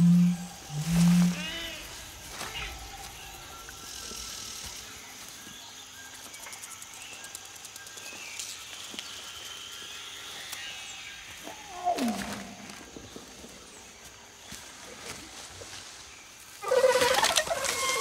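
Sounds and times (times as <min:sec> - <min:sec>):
distant creature calls: 0:00.0 - 0:01.9, 0:16.6 - 0:18.0
high insect hum: 0:00.0 - 0:18.0
chirps and clicks: 0:02.6 - 0:09.6, 0:10.3 - 0:12.7.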